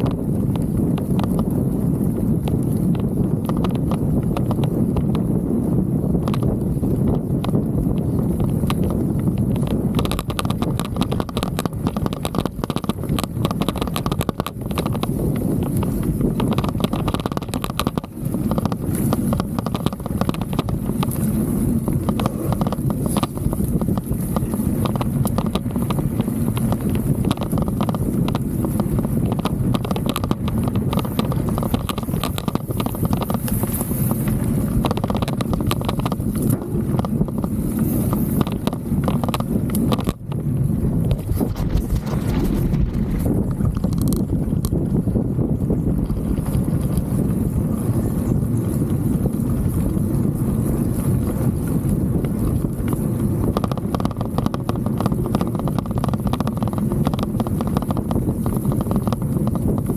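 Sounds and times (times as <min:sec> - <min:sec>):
bike tyre rumble on trail: 0:00.0 - 0:59.9
camera rattling on mount: 0:09.6 - 0:34.1, 0:34.7 - 0:40.4, 0:41.0 - 0:44.9, 0:53.4 - 0:59.2.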